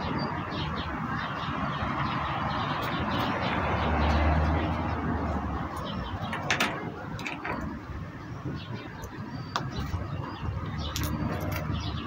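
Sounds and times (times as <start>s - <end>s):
outdoor background rumble: 0.0s - 12.0s
sharp clicks and knocks: 5.8s - 7.7s.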